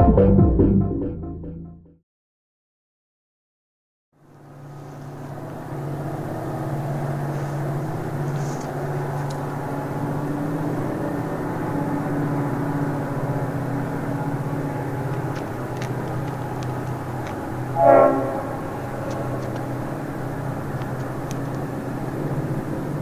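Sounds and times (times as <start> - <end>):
diesel locomotive engine droning: 4.2 - 23.0
locomotive howl: 4.4 - 23.0.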